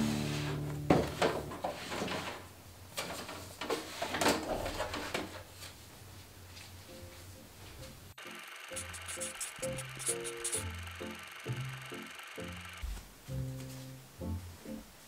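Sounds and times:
paper rubbing: 8.7 - 10.7.

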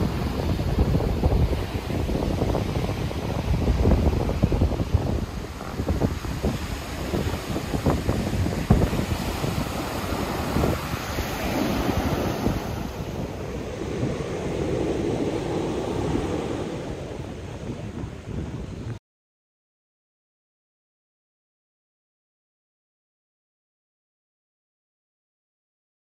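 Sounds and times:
ocean surf breaking: 0.0 - 19.0
wind buffeting microphone: 0.0 - 19.0.

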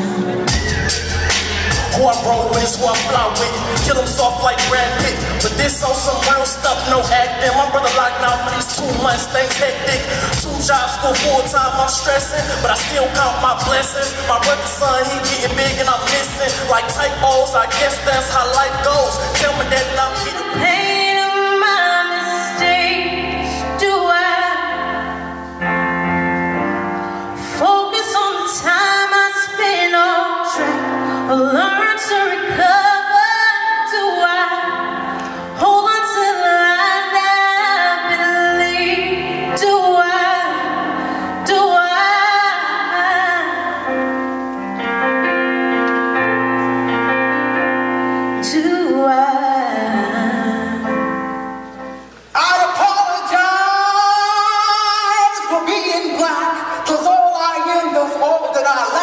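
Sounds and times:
instrumental held chords: 0.0 - 32.9, 34.2 - 56.7
woman singing: 1.9 - 25.3, 27.4 - 44.0, 48.4 - 51.1.

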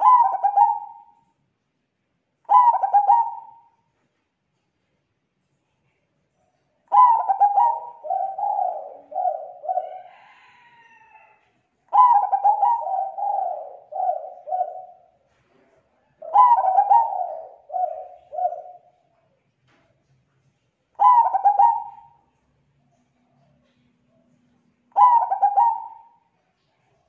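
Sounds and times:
dove cooing: 0.0 - 1.2, 2.5 - 3.8, 6.9 - 11.0, 11.9 - 19.0, 21.0 - 22.4, 23.1 - 27.0.

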